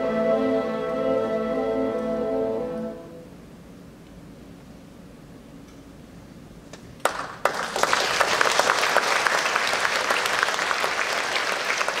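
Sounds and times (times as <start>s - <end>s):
audience applause: 7.0s - 12.0s.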